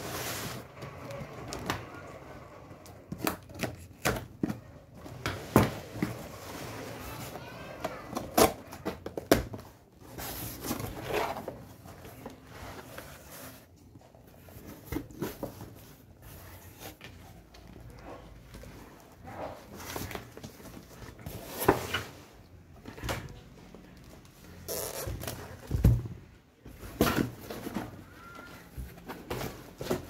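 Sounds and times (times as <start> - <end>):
cardboard rustling: 0.0 - 2.1, 24.3 - 30.0.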